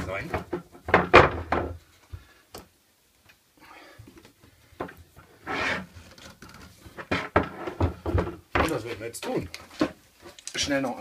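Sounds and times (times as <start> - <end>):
clamp scraping slide: 5.4 - 6.2.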